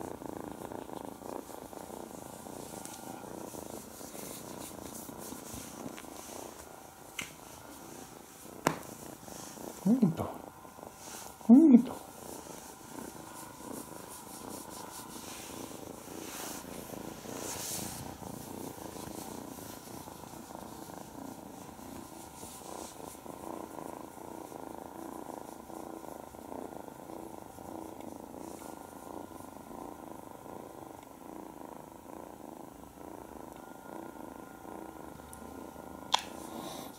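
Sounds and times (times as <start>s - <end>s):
kitten purring: 0.0s - 36.9s.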